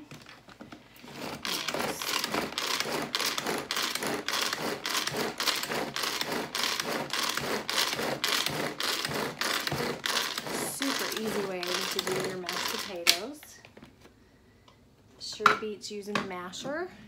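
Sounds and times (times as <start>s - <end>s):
pull-cord chopper whirring: 1.0s - 13.2s.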